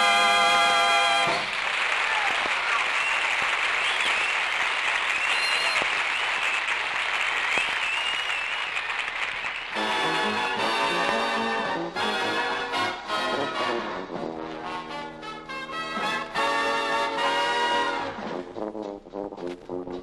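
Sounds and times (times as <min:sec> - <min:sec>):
studio audience applauding: 0:00.4 - 0:11.6.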